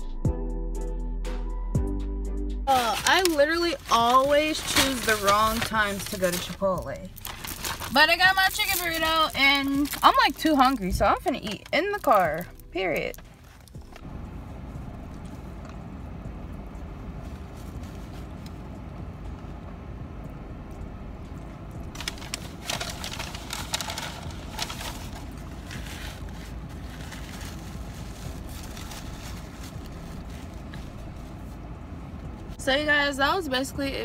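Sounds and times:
foil wrapper crinkling: 2.7 - 14.1, 21.9 - 31.6
car interior hum: 2.7 - 34.0.

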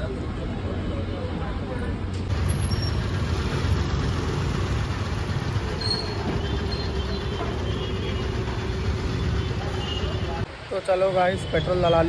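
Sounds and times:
motorbike engines running: 2.3 - 10.5.

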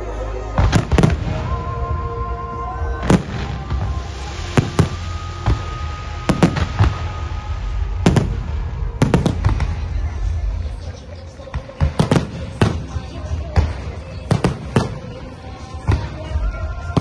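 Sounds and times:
low rumble: 0.0 - 11.4
music playing: 0.0 - 17.0
fireworks bursting: 0.6 - 17.0.

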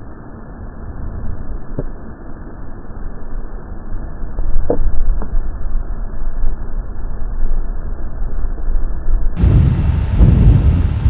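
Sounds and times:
wind buffeting microphone: 9.4 - 11.0.

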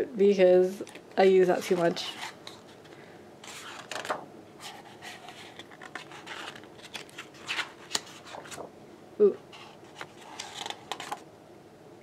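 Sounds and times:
book pages turning: 1.6 - 8.7, 9.5 - 11.2.

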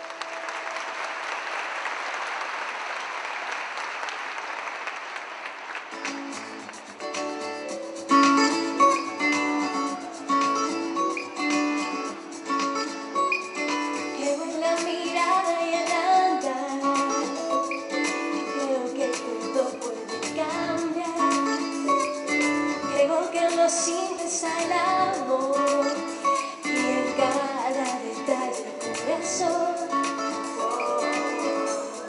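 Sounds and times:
guitar: 5.8 - 32.0
woman singing a pop song: 14.0 - 32.0.

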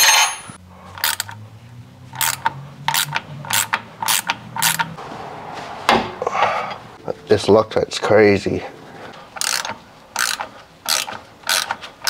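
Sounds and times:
hand ratchet clicking: 2.2 - 4.9, 9.4 - 11.9.

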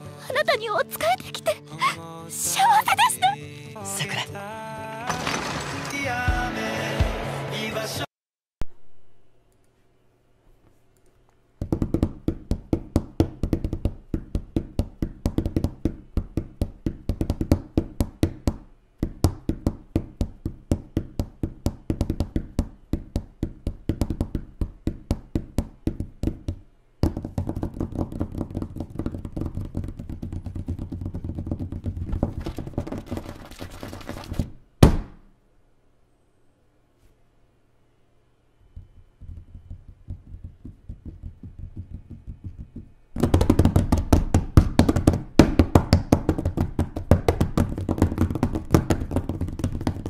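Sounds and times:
tyre crushing cans: 5.0 - 6.3.

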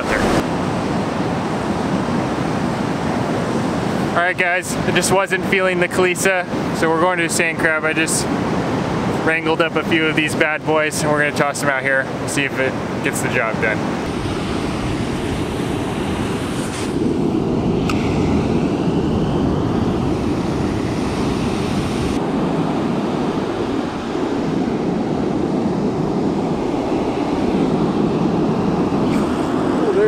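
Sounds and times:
wind buffeting microphone: 0.0 - 5.3, 13.8 - 30.0
ocean surf breaking: 0.0 - 30.0.

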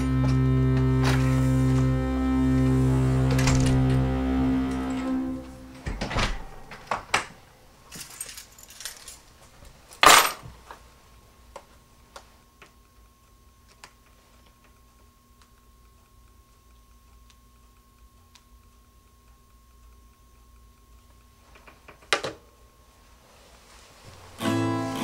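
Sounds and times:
faint electronic tone: 0.0 - 7.0
soft ticks: 11.6 - 22.0.

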